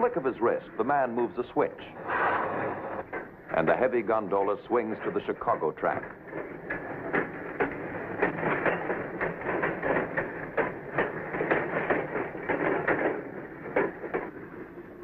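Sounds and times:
railcar rolling rumble: 0.0 - 15.0
wheels knocking over rail joints: 3.0 - 15.0.

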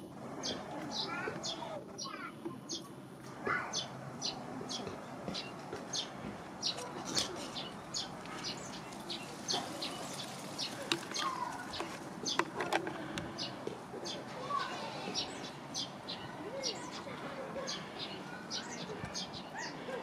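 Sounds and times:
steady outdoor background: 0.0 - 20.0
small bird chirping: 3.7 - 17.1.

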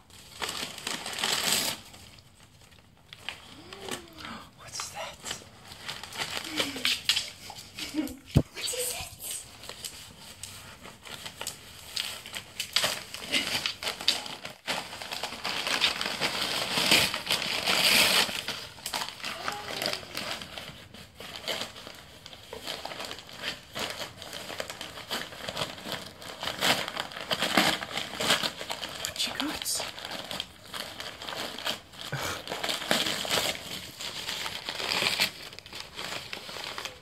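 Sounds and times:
dog tearing paper wrapping: 0.0 - 4.2, 5.0 - 37.0.

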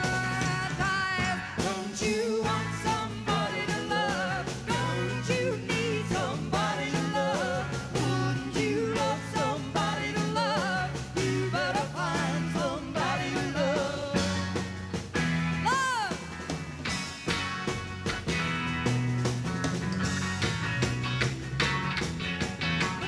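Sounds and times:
woman singing lead: 0.0 - 14.6, 15.6 - 16.3
rock band playing live: 0.0 - 23.0.

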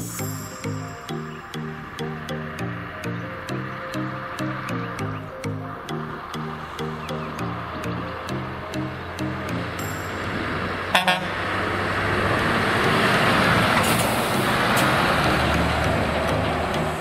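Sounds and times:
truck driving past: 0.0 - 17.0
truck horn toots: 8.8 - 17.0.

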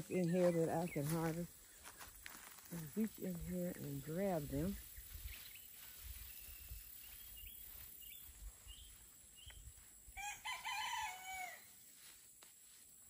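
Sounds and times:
rooster crowing: 10.2 - 11.7.

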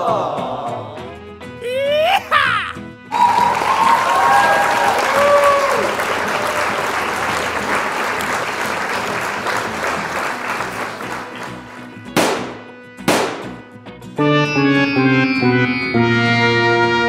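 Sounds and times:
applause-like clatter: 3.2 - 12.4.

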